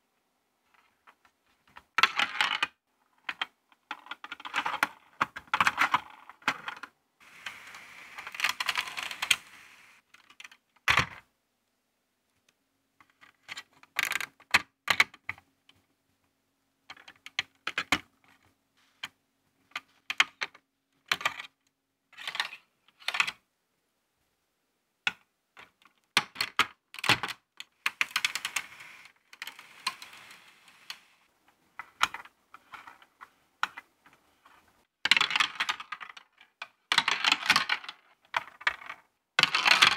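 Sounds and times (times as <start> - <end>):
plastic parts clicking and snapping: 1.7 - 11.0, 31.8 - 39.9.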